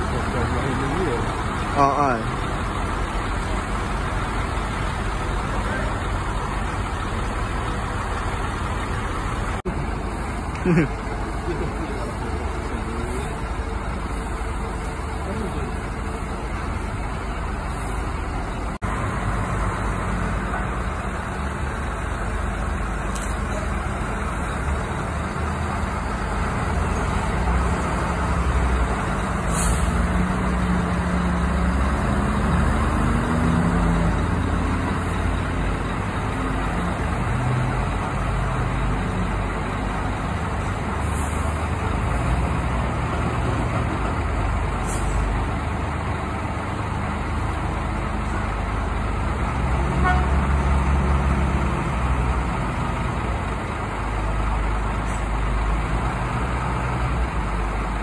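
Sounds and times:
bus diesel engines running: 0:00.0 - 0:58.0
brief air hisses: 0:29.5 - 0:30.0.

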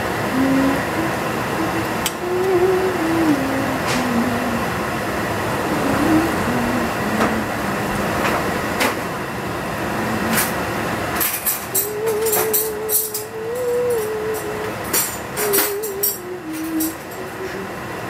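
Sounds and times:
faint wavering tune: 0:00.3 - 0:04.7, 0:11.7 - 0:17.7.

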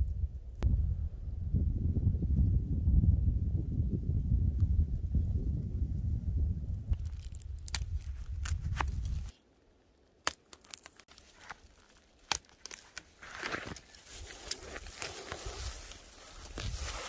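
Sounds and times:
low rumble: 0:00.0 - 0:09.3
footsteps snapping twigs and leaves: 0:07.0 - 0:17.0.

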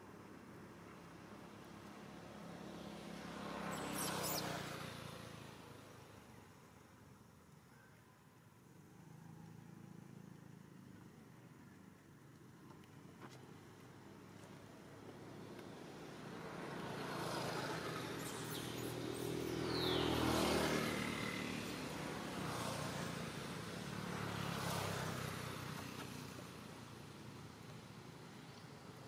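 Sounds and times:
vehicle driving past: 0:02.3 - 0:06.2, 0:15.4 - 0:26.4.

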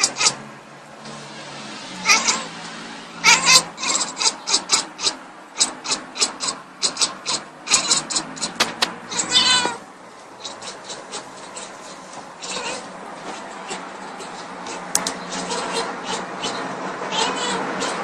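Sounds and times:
cat chattering: 0:02.0 - 0:02.5, 0:03.2 - 0:09.8, 0:10.4 - 0:18.0
cat meowing: 0:02.0 - 0:02.5, 0:03.2 - 0:05.2, 0:07.3 - 0:09.8, 0:12.4 - 0:12.9, 0:13.7 - 0:18.0.

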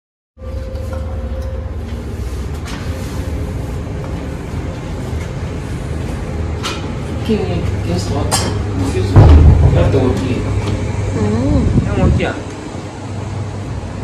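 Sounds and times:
low rumble on phone microphone: 0:09.1 - 0:12.4.

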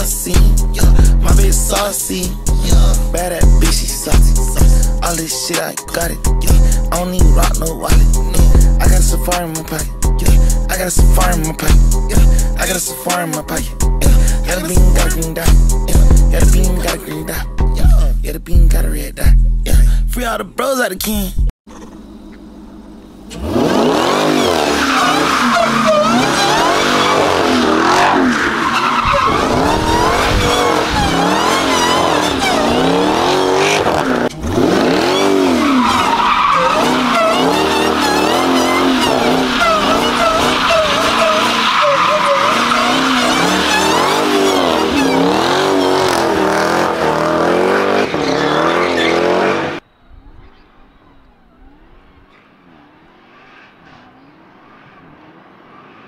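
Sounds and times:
engine revving high: 0:23.2 - 0:49.8
tyres squealing: 0:23.3 - 0:55.9.

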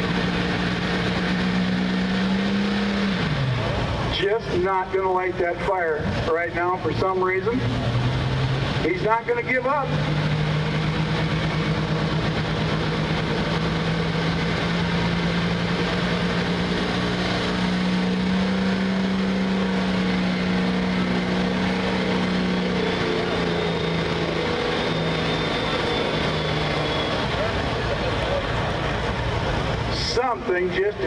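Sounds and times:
diesel tractor engine running: 0:00.0 - 0:31.0
faint high whine: 0:18.0 - 0:31.0.

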